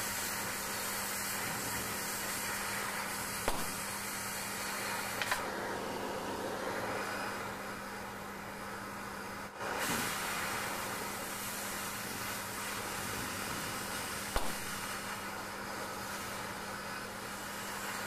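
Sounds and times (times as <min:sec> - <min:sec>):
cutting torch hissing: 0:00.0 - 0:18.0
sharp click: 0:03.4 - 0:03.7, 0:14.4 - 0:14.6.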